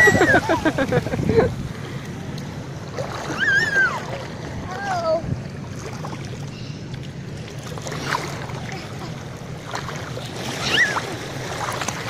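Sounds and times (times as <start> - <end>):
wind and surf rushing: 0.0 - 6.6
feet wading through water: 0.0 - 12.0.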